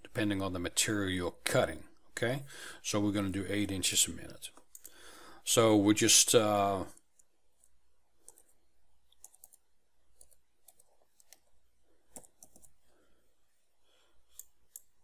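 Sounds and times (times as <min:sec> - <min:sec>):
keyboard keys clicking: 0:09.1 - 0:09.6, 0:12.1 - 0:12.8.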